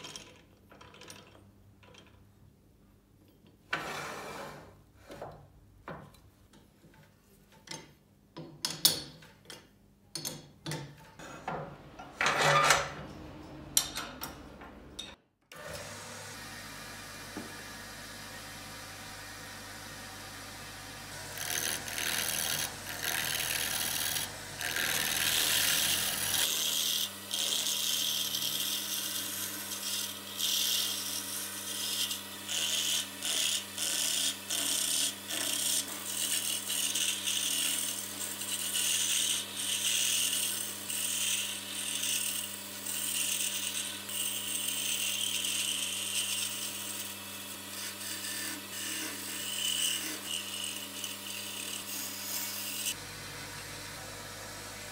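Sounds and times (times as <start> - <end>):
wood being rasped by hand: 21.3 - 53.0.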